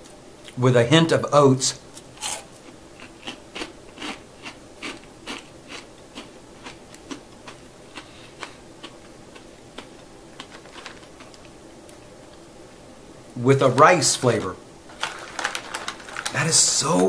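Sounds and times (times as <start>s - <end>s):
chewing crisp rice cracker: 2.2s - 12.1s.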